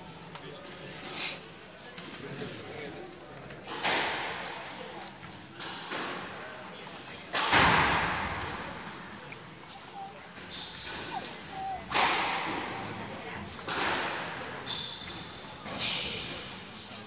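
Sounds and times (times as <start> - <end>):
shoes squeaking on court floor: 9.6 - 12.6.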